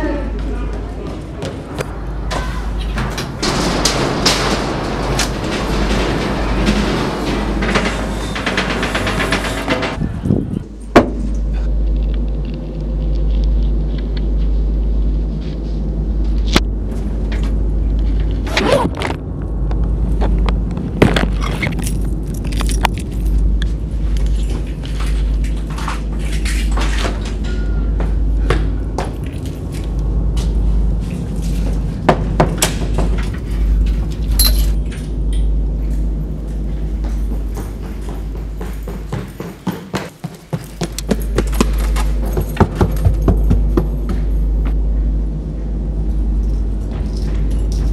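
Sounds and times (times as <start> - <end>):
low rumbling drone: 1.6 - 26.6, 41.2 - 47.9
double doors knocking open: 2.4 - 10.0
metallic clink: 34.4 - 34.8.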